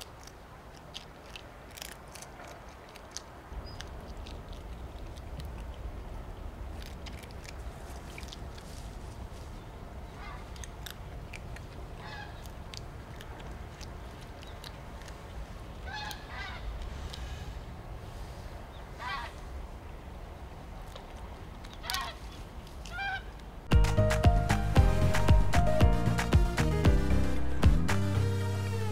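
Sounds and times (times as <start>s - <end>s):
animal chewing food: 0.0s - 18.5s
steady low rumble: 0.5s - 22.7s, 23.5s - 28.9s.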